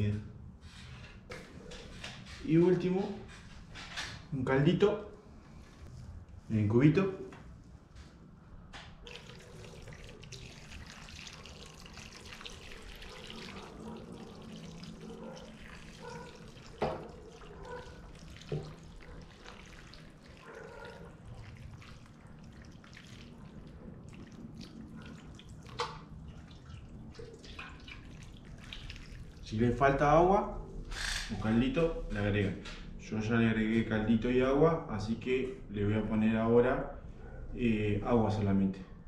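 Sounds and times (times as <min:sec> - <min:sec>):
water pouring into a pan: 0:09.1 - 0:29.6.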